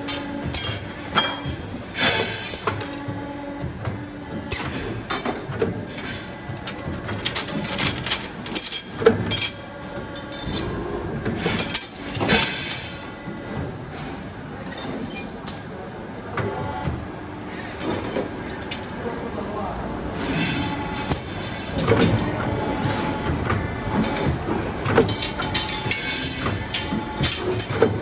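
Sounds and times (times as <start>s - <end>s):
metallic clanks and clinks: 0.0s - 3.0s, 7.2s - 10.8s, 11.4s - 13.0s, 14.7s - 15.6s, 17.8s - 19.0s, 24.0s - 28.0s
machine hum: 0.0s - 28.0s.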